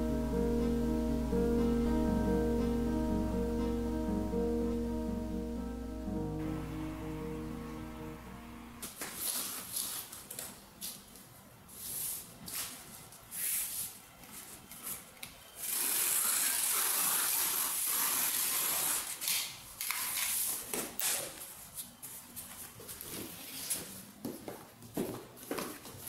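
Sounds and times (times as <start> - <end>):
steady hiss: 0.0 - 9.5.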